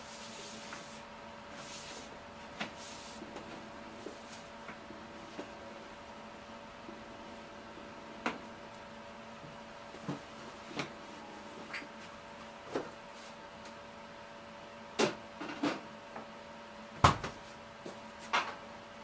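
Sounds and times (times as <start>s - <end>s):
steady hum: 0.0s - 19.0s.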